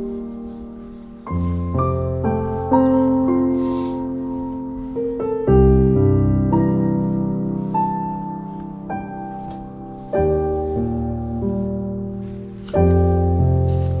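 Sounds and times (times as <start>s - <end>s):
slow solo piano: 0.0s - 14.0s.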